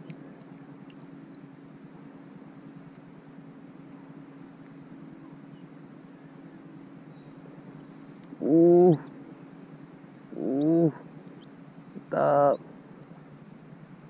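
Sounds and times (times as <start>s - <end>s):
steady low hum: 0.0s - 14.0s
person making wordless vocal sounds: 8.4s - 9.1s, 10.3s - 11.0s, 12.0s - 12.6s.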